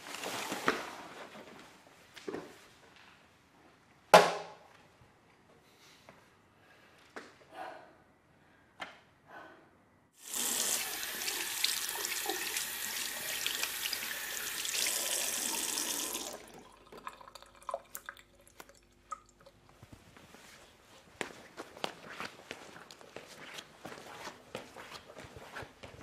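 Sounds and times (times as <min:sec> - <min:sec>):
tap water splashing into sink: 0:10.3 - 0:19.3.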